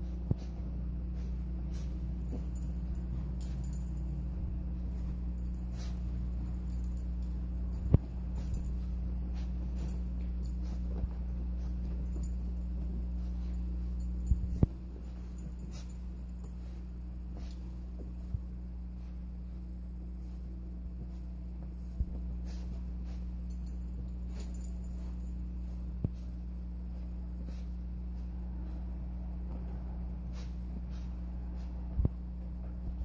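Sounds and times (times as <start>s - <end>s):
low hum: 0.0s - 33.0s
faint jingling: 1.2s - 17.6s, 21.8s - 26.3s.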